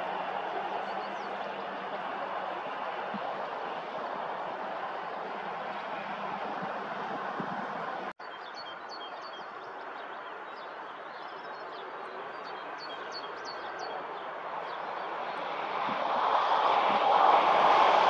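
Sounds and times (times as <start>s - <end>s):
distant train rumbling: 0.0s - 8.1s.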